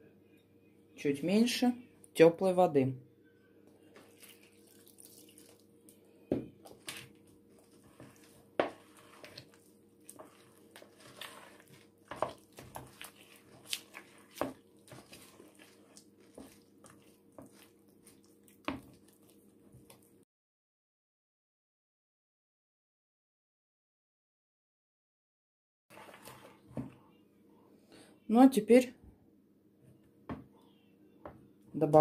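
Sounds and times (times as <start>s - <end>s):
dough squelching: 3.8s - 20.2s, 25.9s - 27.0s.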